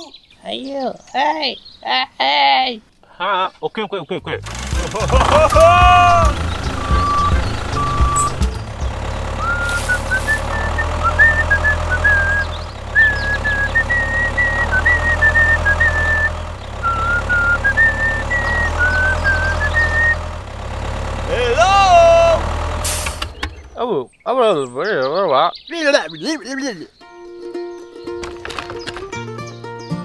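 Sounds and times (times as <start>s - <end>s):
tractor engine rumbling: 4.1s - 27.0s, 27.8s - 29.4s
high stepped tune: 4.4s - 12.0s
short beeps: 6.7s - 8.4s.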